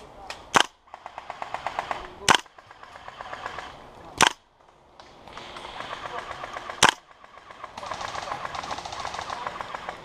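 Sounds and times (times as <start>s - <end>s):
loud airsoft gun shots: 0.5s - 3.4s, 4.2s - 4.4s, 5.3s - 7.1s
rapid automatic airsoft fire: 5.4s - 10.0s.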